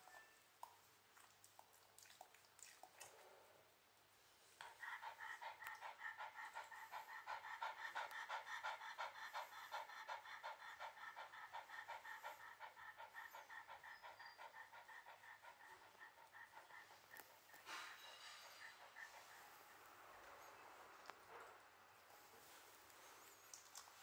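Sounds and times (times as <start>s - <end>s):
dog panting: 4.6s - 21.6s.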